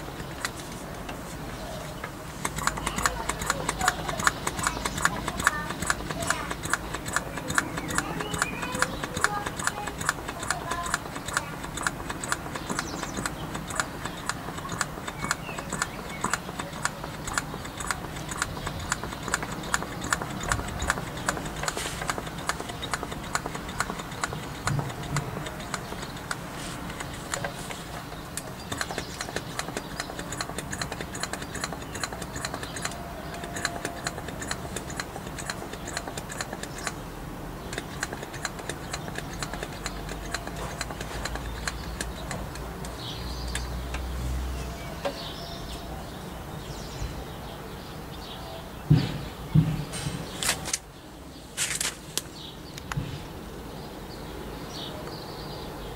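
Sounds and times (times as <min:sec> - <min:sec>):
rapid mechanical ticking: 0:00.0 - 0:44.2.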